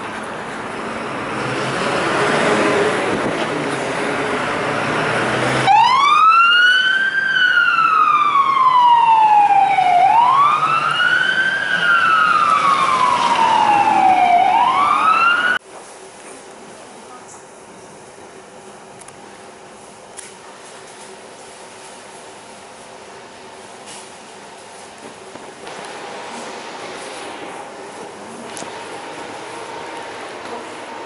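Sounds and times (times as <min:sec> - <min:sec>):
vehicle engine: 0:00.0 - 0:06.0, 0:07.6 - 0:15.6, 0:24.0 - 0:31.0
fire engine siren wailing: 0:04.4 - 0:15.6.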